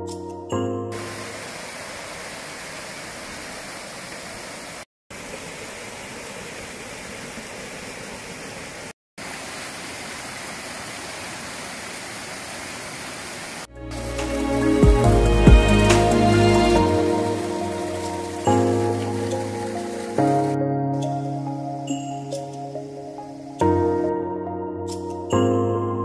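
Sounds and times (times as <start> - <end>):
stream splashing over rocks: 0.9 - 14.8, 15.9 - 20.6.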